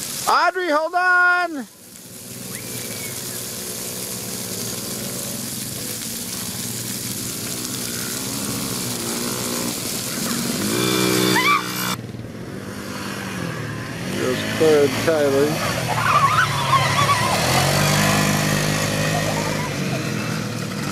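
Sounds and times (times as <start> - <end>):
atv engine revving: 1.7 - 20.9
high rising sound: 8.0 - 14.7.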